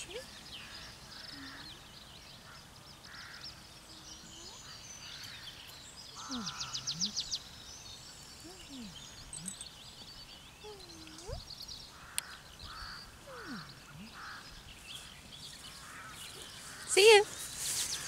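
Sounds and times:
small birds chirping and whistling: 0.0 - 18.0
soft low gliding vocal sounds: 1.1 - 2.0, 6.2 - 7.4, 8.4 - 9.9, 10.6 - 11.5, 13.2 - 14.6.

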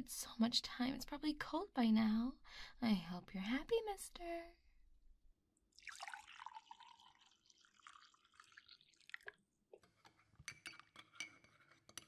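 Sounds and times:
tea pouring into a cup: 5.7 - 9.5.

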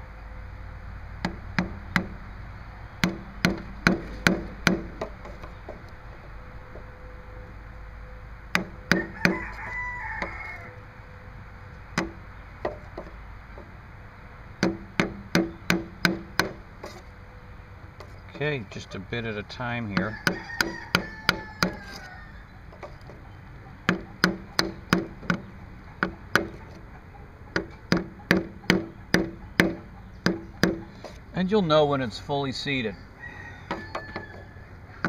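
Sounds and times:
hammer tapping plastic pipe: 23.9 - 26.6, 27.6 - 31.2.

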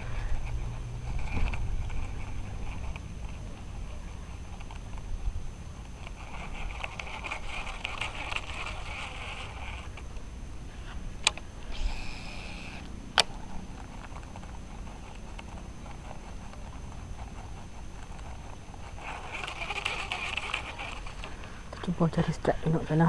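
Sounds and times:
fishing reel whirring: 6.0 - 10.0, 11.6 - 13.5, 14.3 - 21.5
fishing reel clicks: 19.0 - 21.3.

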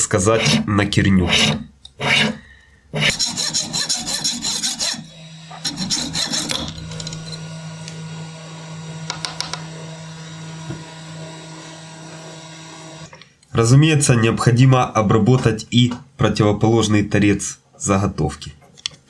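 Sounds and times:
hacksaw cutting brass: 0.2 - 7.5.

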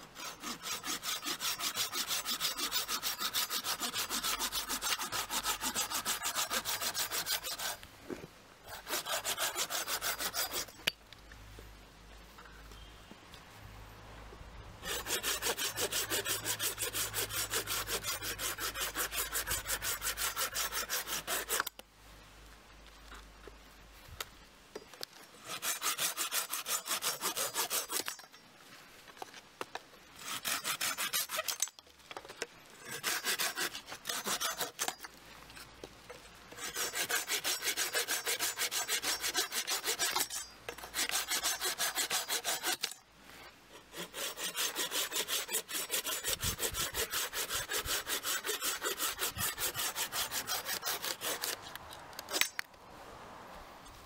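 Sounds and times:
pruning saw cutting branch: 0.0 - 7.9, 8.7 - 11.0, 14.8 - 21.8, 25.4 - 28.4, 30.2 - 31.8, 32.8 - 35.1, 36.5 - 43.0, 43.7 - 52.7.

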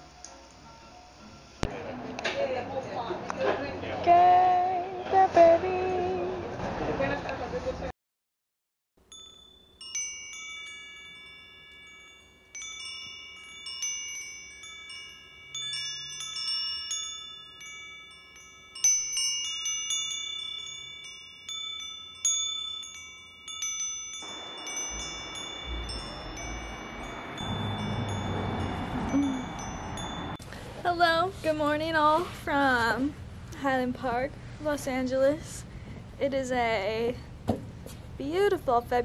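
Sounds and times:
chimes ringing: 9.0 - 30.4.

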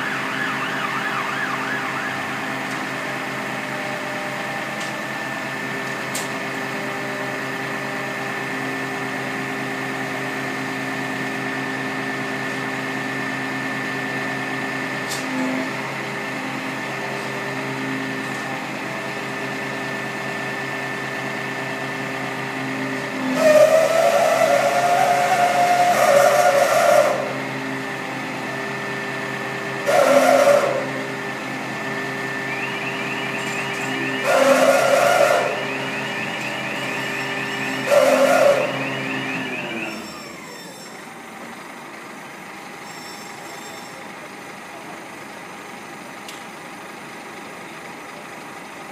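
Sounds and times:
engine running steadily: 0.0 - 48.9
hydraulic whine and hiss: 29.8 - 41.5.

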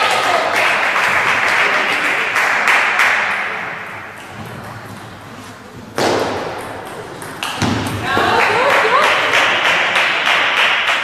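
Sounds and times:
spectators applauding: 0.0 - 3.5, 8.1 - 11.0.

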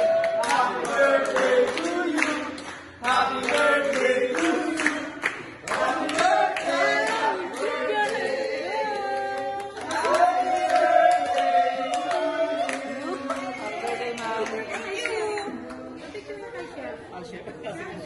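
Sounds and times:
hands clapping: 0.0 - 8.2
group of people singing: 0.0 - 16.6.

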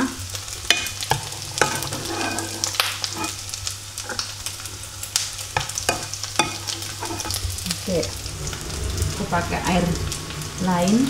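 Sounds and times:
low steady hum: 0.0 - 11.0
metal ladle clinking and scraping: 0.7 - 3.4, 5.6 - 7.5.

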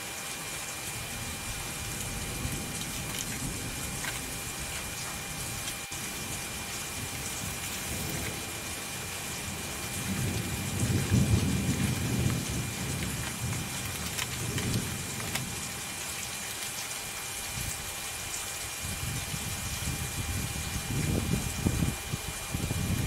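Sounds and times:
steady hiss: 0.0 - 23.0.

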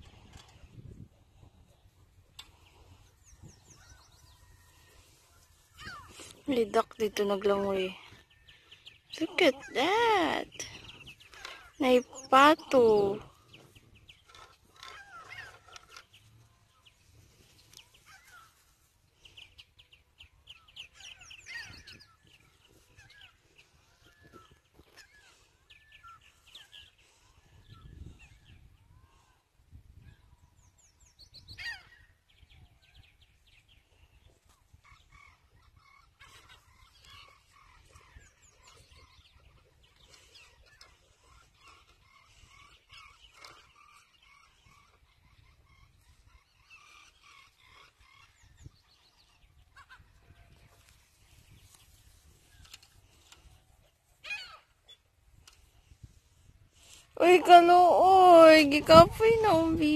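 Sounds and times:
wild birds chirping and trilling: 0.0 - 57.2.

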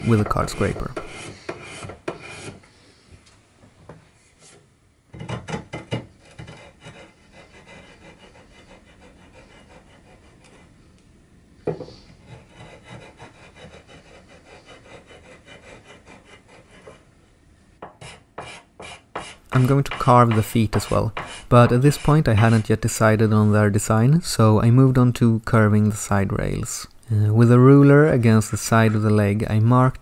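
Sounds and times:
hand tool scraping wood: 0.0 - 2.6, 5.2 - 10.7, 12.2 - 17.0, 17.9 - 23.3, 28.7 - 29.3.

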